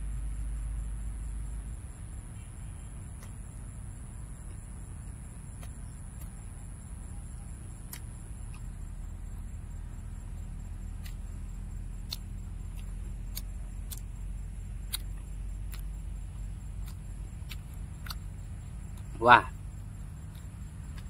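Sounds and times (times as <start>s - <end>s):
faint high whine: 0.0s - 21.0s
steady low rumble: 0.0s - 21.0s
person chewing: 4.5s - 6.6s, 10.3s - 19.1s, 19.8s - 21.0s
sharp mouth clicks: 11.0s - 11.4s, 12.0s - 14.2s, 14.8s - 19.2s.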